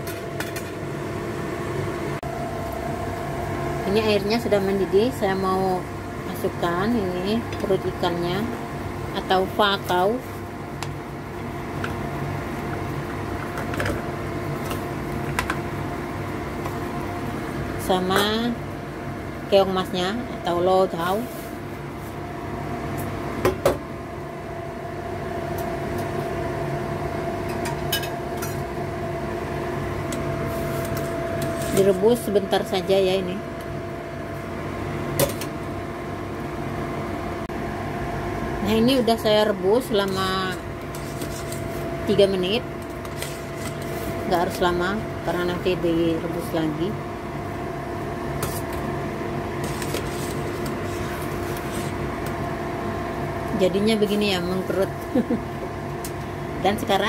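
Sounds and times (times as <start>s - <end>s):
kitchen hum: 0.0s - 57.0s
pot of water boiling: 8.3s - 19.1s.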